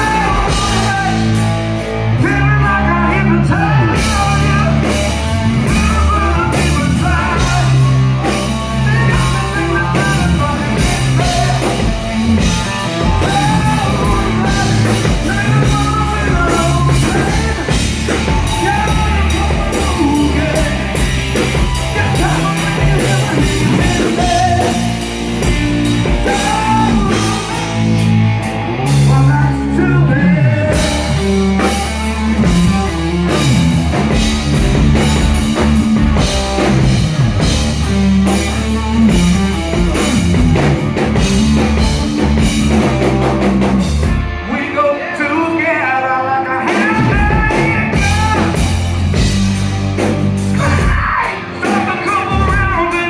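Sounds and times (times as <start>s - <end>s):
man singing lead vocals: 0.0s - 43.1s, 44.4s - 49.3s, 50.5s - 53.0s
electric guitar: 0.0s - 53.0s
rock band playing: 0.0s - 53.0s.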